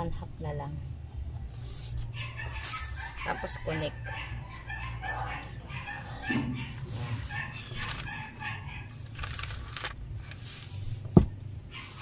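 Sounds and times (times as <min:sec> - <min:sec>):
animal calls: 0:02.1 - 0:09.1
paper rustling and crinkling: 0:06.7 - 0:11.2, 0:11.8 - 0:12.0.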